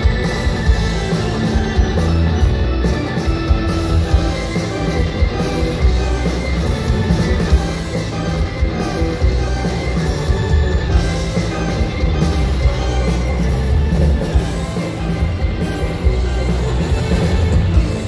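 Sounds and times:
rock band music: 0.0 - 18.0.

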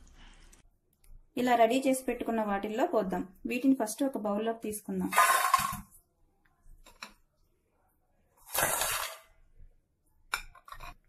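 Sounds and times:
fried snacks clattering in metal bowl: 5.1 - 5.8.

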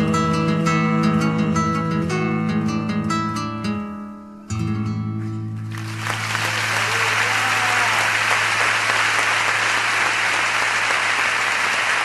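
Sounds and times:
audience applauding: 5.7 - 12.0.

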